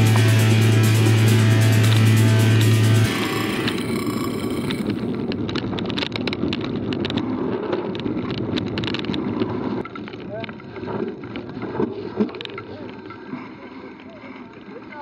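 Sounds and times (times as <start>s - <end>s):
bike tyre rumble on gravel: 1.7s - 12.9s
bike clicks and rattles: 3.1s - 15.0s.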